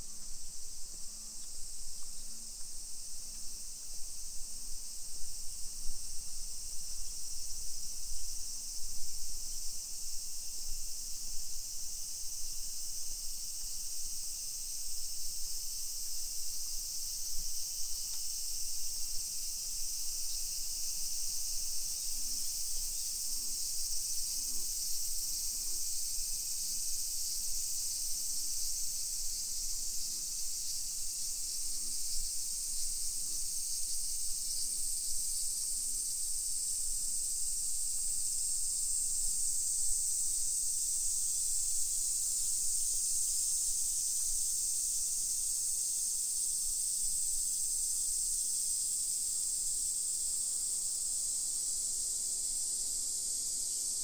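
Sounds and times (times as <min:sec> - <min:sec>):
cicadas droning: 0:00.0 - 0:54.0.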